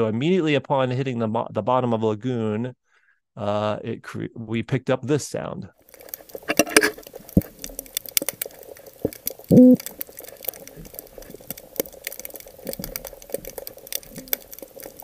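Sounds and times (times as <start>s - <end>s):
crackle of clicks: 5.8s - 15.0s
fish calling low hum: 9.5s - 9.9s.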